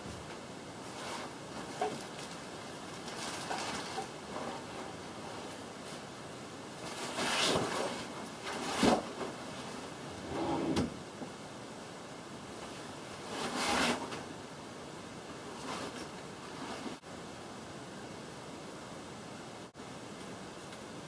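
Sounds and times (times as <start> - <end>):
drawers sliding open and shut: 6.8 - 11.0, 13.2 - 14.3
clothes being handled: 15.4 - 17.0.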